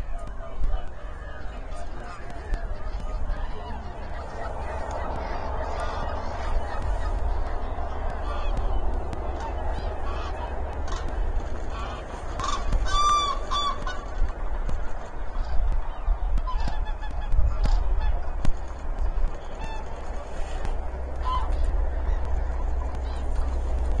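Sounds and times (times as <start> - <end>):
water birds honking: 0.0 - 24.0.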